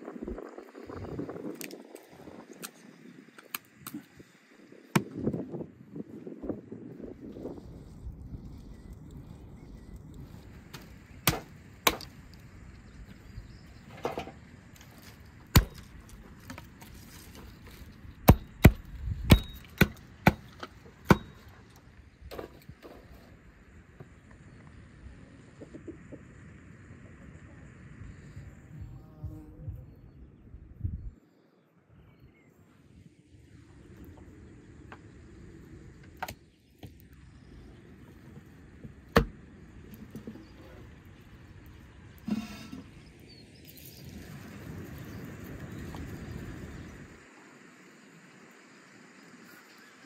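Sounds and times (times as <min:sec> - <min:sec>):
low steady rumble: 0:00.0 - 0:31.2, 0:31.9 - 0:50.0
hatchet chopping branches: 0:04.9 - 0:05.4, 0:10.7 - 0:12.2, 0:14.8 - 0:21.7, 0:36.1 - 0:36.4, 0:39.1 - 0:39.4.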